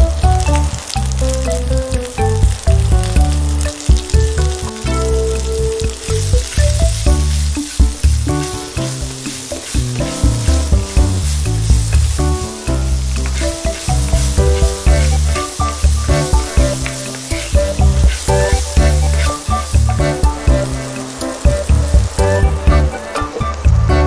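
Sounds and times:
background music: 0:00.0 - 0:24.0
vegetables sizzling in a frying pan: 0:00.0 - 0:24.0
spatula scraping a pan: 0:05.3 - 0:21.4.

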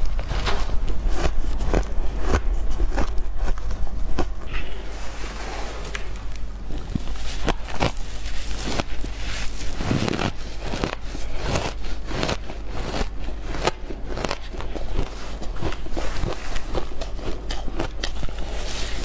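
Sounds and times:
hands scooping ice: 0:04.5 - 0:16.7, 0:18.4 - 0:19.0
ice crunching between teeth: 0:06.7 - 0:19.0.

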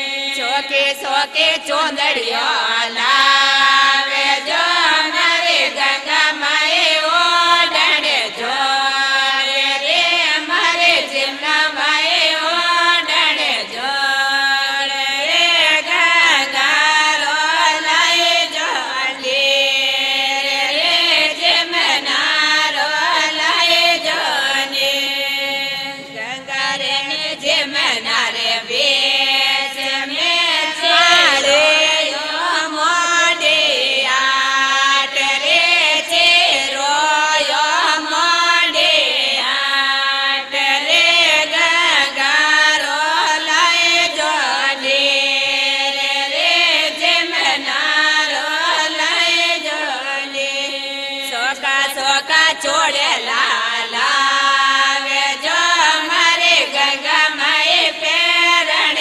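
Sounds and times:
women singing: 0:00.0 - 0:59.0.

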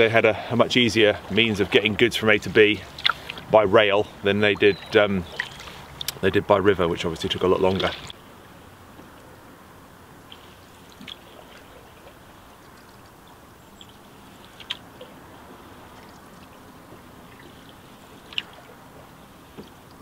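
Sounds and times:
water lapping along canoe hull: 0:00.0 - 0:20.0
water drips: 0:00.8 - 0:03.6, 0:04.2 - 0:06.4, 0:10.3 - 0:20.0.

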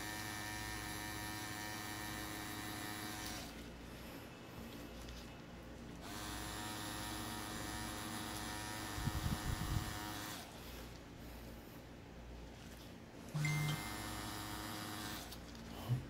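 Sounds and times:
tattoo machine buzzing: 0:00.0 - 0:03.6, 0:06.0 - 0:10.6, 0:13.3 - 0:15.4.

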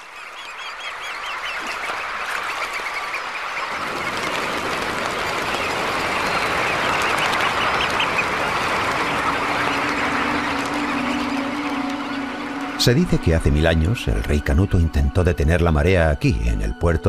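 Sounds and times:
flock of birds chirping: 0:00.0 - 0:17.0.

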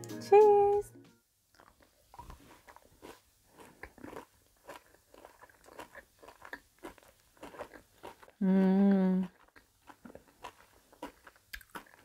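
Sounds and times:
mouth chewing chocolate: 0:01.5 - 0:12.0.

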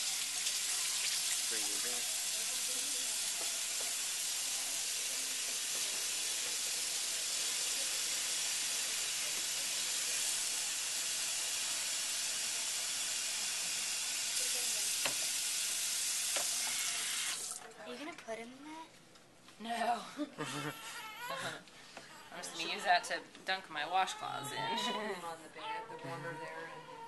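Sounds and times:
running water hiss: 0:00.0 - 0:17.6.

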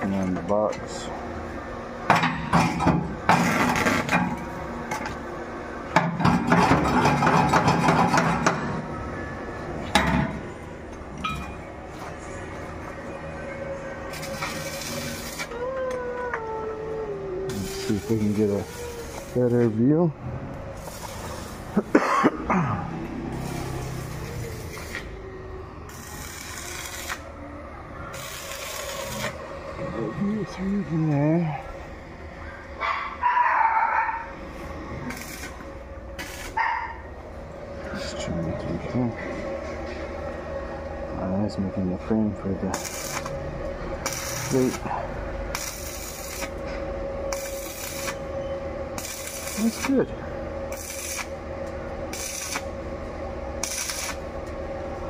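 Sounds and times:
steady low hum: 0:00.0 - 0:55.0
metalworking tool hissing: 0:17.4 - 0:19.8, 0:20.7 - 0:21.9, 0:23.1 - 0:25.2.

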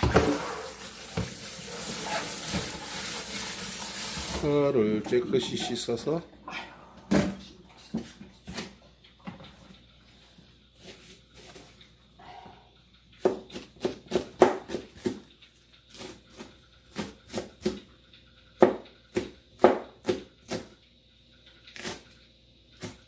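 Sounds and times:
knife chopping on plastic board: 0:13.2 - 0:15.2, 0:18.6 - 0:20.7.

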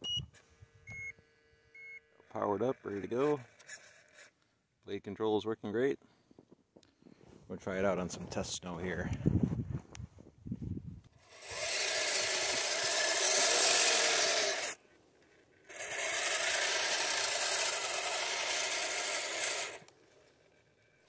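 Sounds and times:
electric motors and gears whining: 0:00.0 - 0:04.4, 0:11.2 - 0:21.0.

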